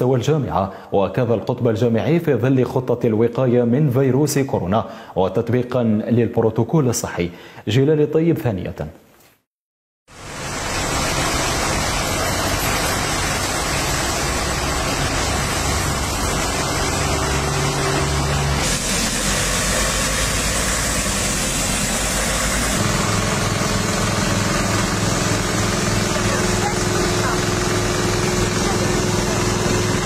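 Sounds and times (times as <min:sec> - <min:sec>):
loud hiss of spray: 0:10.2 - 0:30.0
truck engines running: 0:10.2 - 0:30.0.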